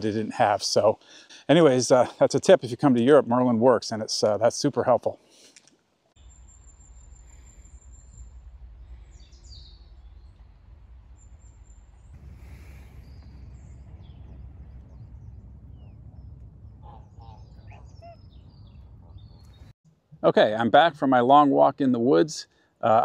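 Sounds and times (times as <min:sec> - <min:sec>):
small birds chirping: 0:06.2 - 0:19.8
steady low rumble: 0:06.2 - 0:21.2.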